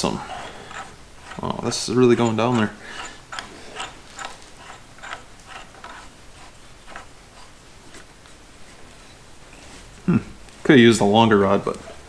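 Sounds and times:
hand ratchet clicking: 0.2s - 6.0s.

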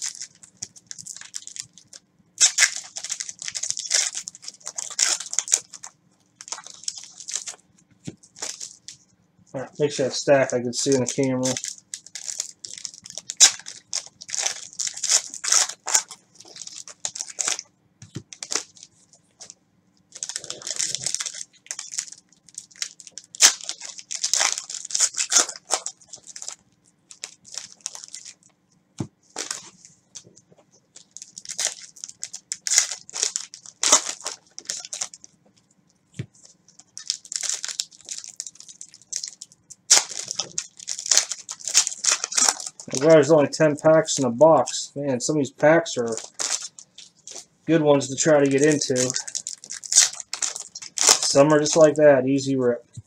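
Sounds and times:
foil wrappers crinkling and tearing: 0.0s - 9.0s, 9.6s - 28.5s, 29.3s - 35.4s, 36.4s - 44.8s, 45.8s - 52.0s.

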